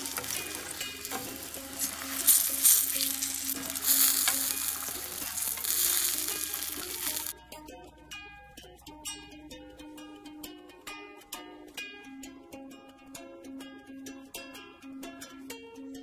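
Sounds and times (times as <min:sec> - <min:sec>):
fried food sizzling in water: 0:00.0 - 0:07.3.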